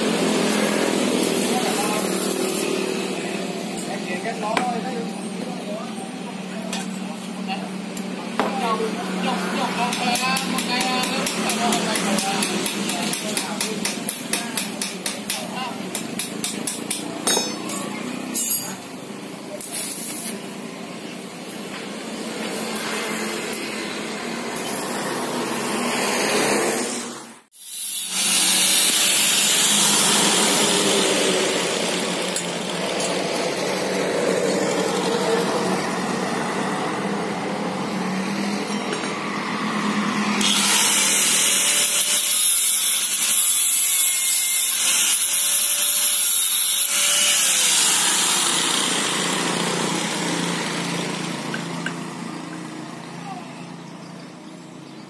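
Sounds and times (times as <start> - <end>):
power tool grinding metal: 0.0 - 4.6, 22.1 - 37.0, 39.8 - 52.3.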